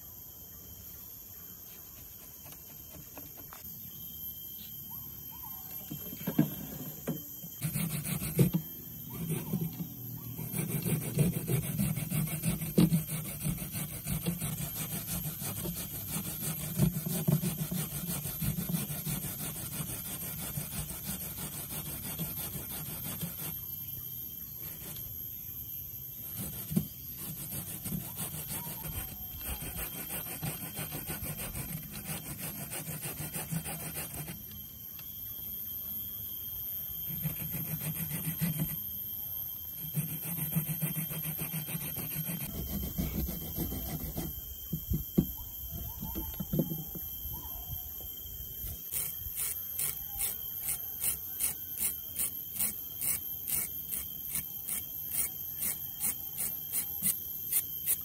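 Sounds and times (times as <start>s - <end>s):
coconut grating rasping strokes: 6.2s - 25.2s, 26.1s - 34.7s, 37.1s - 38.9s, 39.8s - 45.0s, 48.9s - 58.0s.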